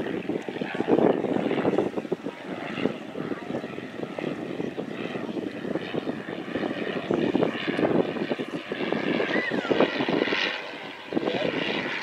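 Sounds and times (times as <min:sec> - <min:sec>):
biplane engine droning overhead: 0:00.0 - 0:12.0.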